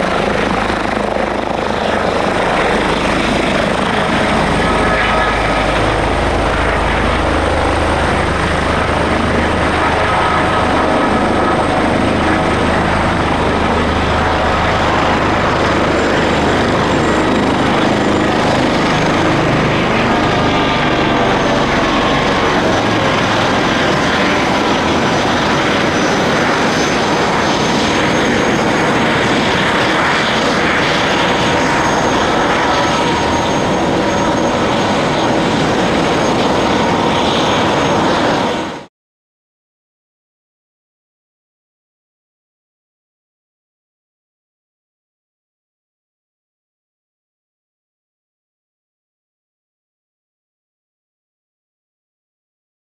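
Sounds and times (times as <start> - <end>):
helicopter rotor noise: 0.0 - 38.9
helicopter turbine whine: 0.0 - 38.9.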